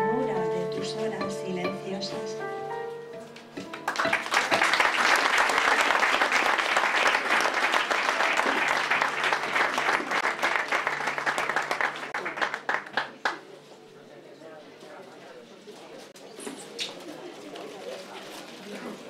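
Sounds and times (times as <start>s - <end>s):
audience applauding: 3.6s - 13.5s.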